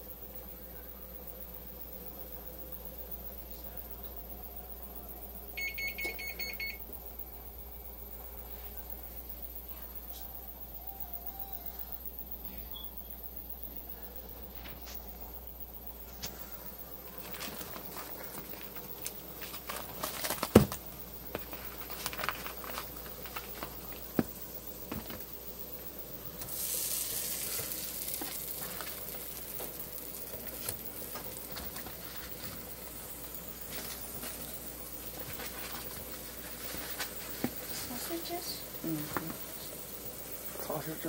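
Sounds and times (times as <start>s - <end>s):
plastic wrapper crinkling: 17.2s - 20.8s, 21.4s - 24.0s
sausages sizzling in a frying pan: 21.0s - 41.0s.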